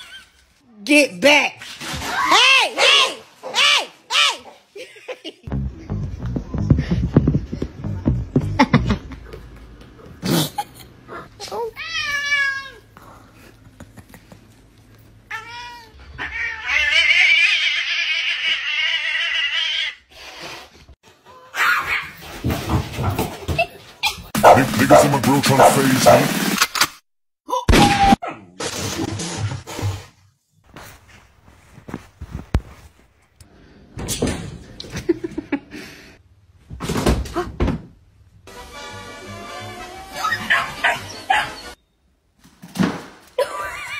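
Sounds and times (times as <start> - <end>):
thumps and knocks: 6.2 - 9.2.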